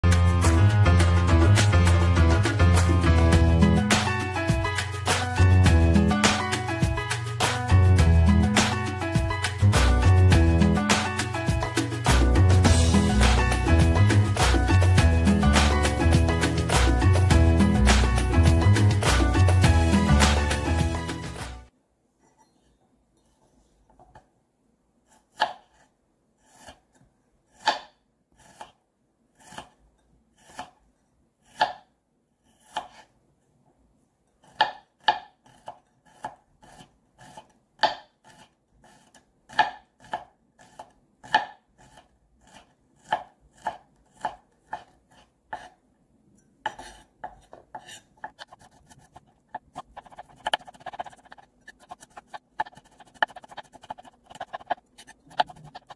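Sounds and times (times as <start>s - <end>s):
knife chopping on wooden board: 25.3s - 25.8s, 27.5s - 28.8s, 31.5s - 31.9s, 34.4s - 45.8s, 46.6s - 55.9s.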